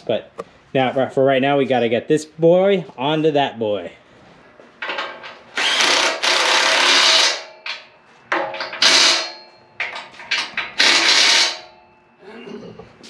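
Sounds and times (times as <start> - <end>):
impact wrench running: 5.5 - 7.8, 8.4 - 9.4, 10.4 - 11.7.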